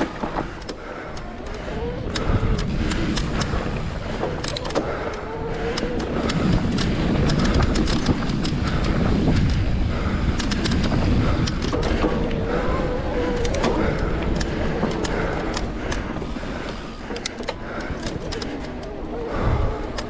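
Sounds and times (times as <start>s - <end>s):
bike clicks and rattles: 0.0s - 20.0s
wind buffeting microphone: 0.0s - 20.0s.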